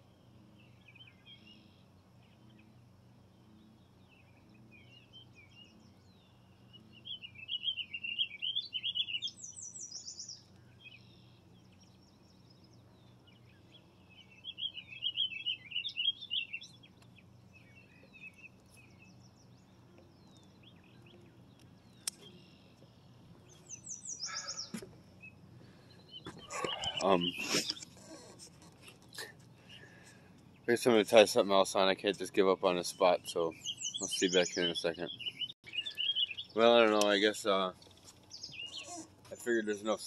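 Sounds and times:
background hum: 0.0 - 40.0
songbirds warbling chirps: 0.0 - 40.0
descending bird trill: 13.6 - 16.9, 23.4 - 30.1, 32.8 - 37.7.

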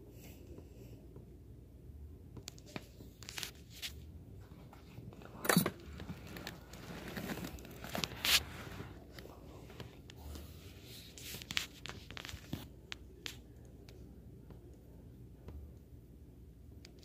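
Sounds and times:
clothing and phone rustling: 2.4 - 13.6.

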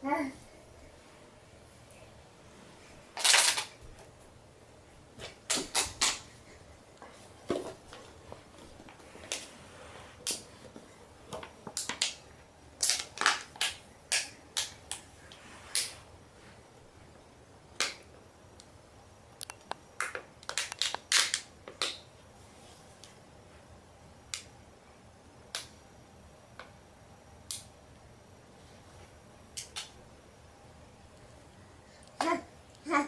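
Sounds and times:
sharp clicks and crunches: 19.4 - 22.0.

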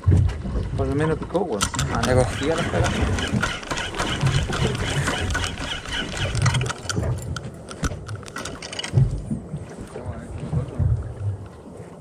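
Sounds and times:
low boat rumble: 0.0 - 12.0
short clicks and knocks: 1.0 - 9.1.

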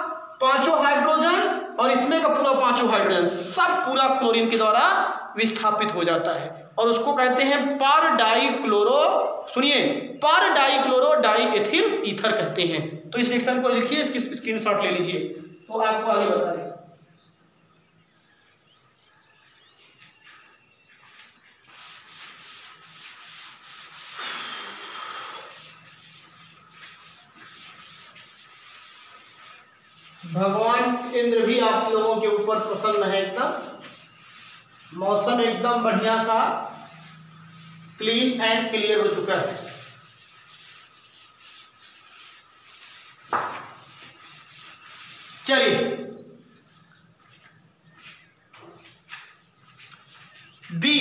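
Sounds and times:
duster wiping a chalkboard: 20.2 - 50.8.

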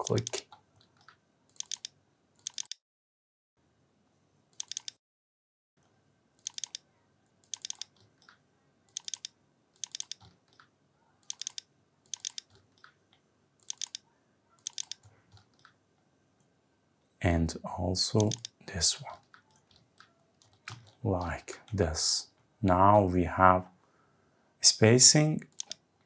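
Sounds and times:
computer mouse double-clicking: 0.0 - 2.8, 4.6 - 5.0, 6.4 - 6.8, 7.4 - 13.0, 13.6 - 14.0, 14.6 - 15.8, 18.2 - 18.6, 25.5 - 25.8.

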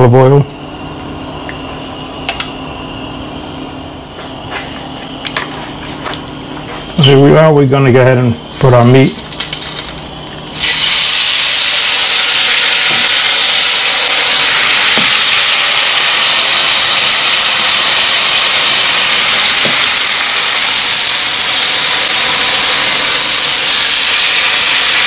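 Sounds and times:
steak sizzling in a frying pan: 9.3 - 25.0.

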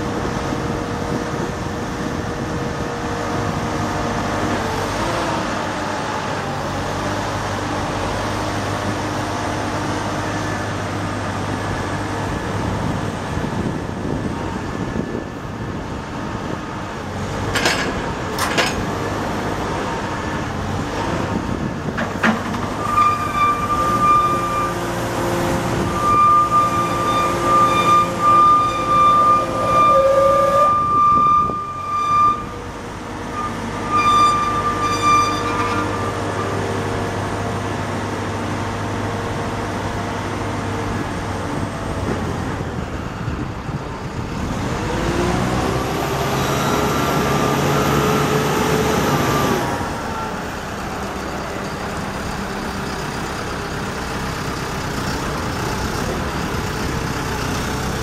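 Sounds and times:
diesel engine running: 0.0 - 58.0
high hydraulic whine: 19.7 - 44.3.

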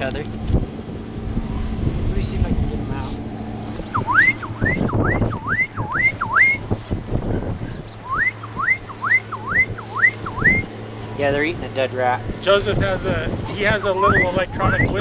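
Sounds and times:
electronic whistle calls: 3.9 - 6.6, 8.0 - 10.7, 14.0 - 15.0.

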